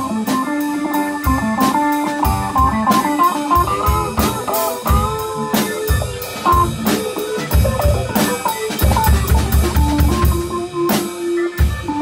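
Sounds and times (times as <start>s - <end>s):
rock band playing live: 0.0s - 12.0s.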